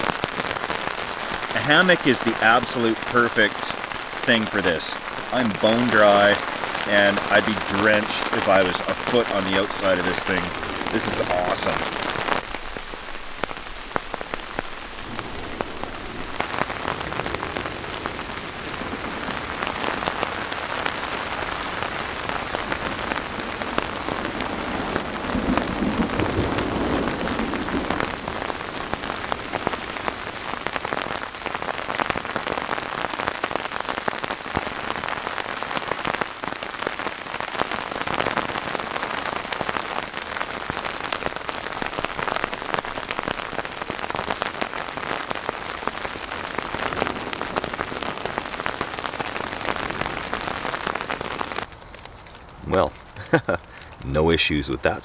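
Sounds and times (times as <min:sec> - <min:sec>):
heavy rain patter: 0:00.0 - 0:55.0
thunder rumble: 0:01.2 - 0:30.6.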